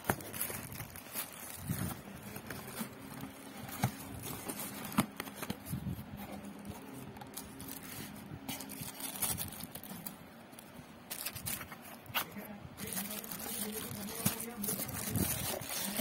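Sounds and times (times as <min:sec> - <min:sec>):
cardboard box being handled: 0:00.0 - 0:10.1
plastic wrapping rustling: 0:00.0 - 0:16.0.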